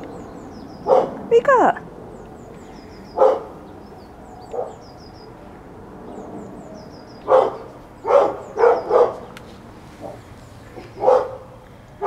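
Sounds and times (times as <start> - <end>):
dog barking: 0.8 - 1.2, 3.2 - 3.5, 4.5 - 4.8, 7.2 - 9.3, 10.8 - 11.5.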